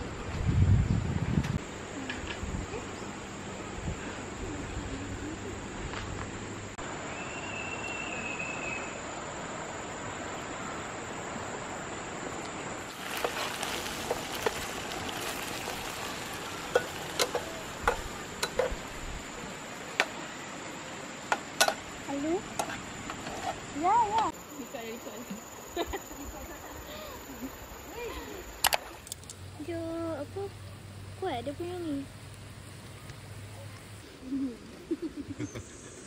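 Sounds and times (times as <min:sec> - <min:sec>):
river running over stones: 0:09.0 - 0:23.0.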